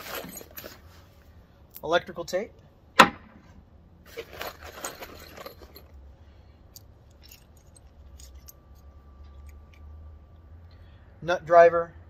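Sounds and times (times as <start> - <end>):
metal hand tools clinking: 4.2 - 6.0, 6.8 - 9.8.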